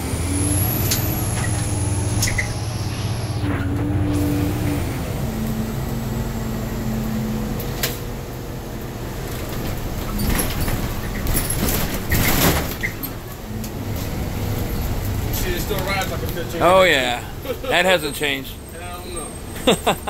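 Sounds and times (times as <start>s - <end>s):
bus body rattling and knocking: 0.0s - 20.0s
bus engine drone: 0.0s - 20.0s
short whine: 0.2s - 8.2s.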